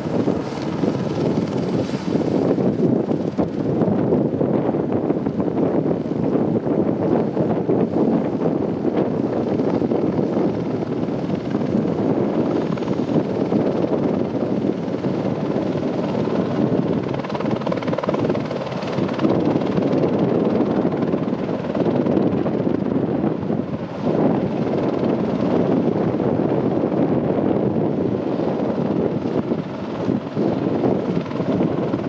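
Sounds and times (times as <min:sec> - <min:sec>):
helicopter rotor and turbine: 0:00.0 - 0:32.0.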